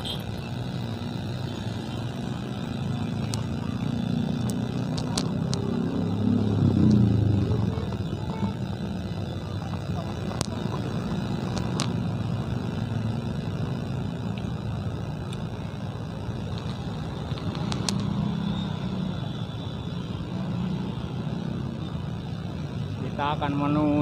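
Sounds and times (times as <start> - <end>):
traffic engines idling: 0.0 - 24.0.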